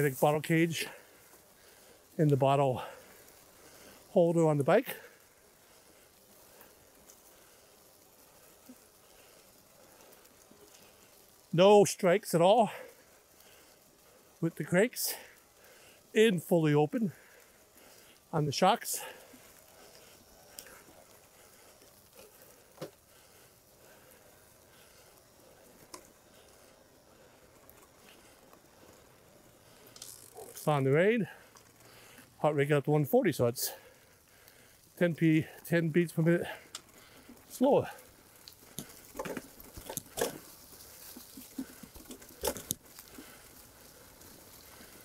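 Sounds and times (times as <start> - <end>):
bike tyres rolling over leaves: 0.0 - 45.0
bike knocking and rattling: 18.8 - 32.4, 36.4 - 45.0.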